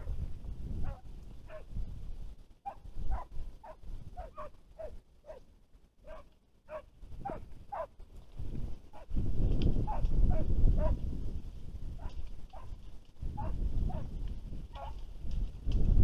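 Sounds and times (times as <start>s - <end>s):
wind rumble on microphone: 0.0s - 5.4s, 6.0s - 16.0s
hounds yelping: 0.8s - 1.7s, 2.6s - 7.9s, 8.9s - 9.1s, 9.8s - 11.0s, 12.0s - 12.8s, 13.4s - 14.1s, 14.7s - 15.1s.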